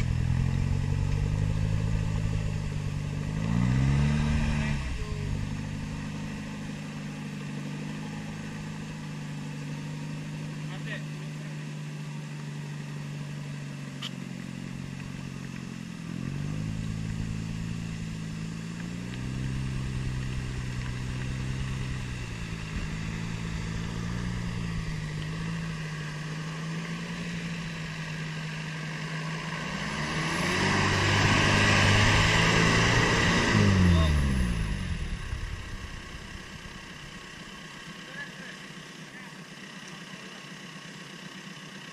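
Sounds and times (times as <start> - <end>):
vehicle passing close by: 0.0 - 7.1, 18.8 - 37.6
off-road engine revving: 0.0 - 41.9.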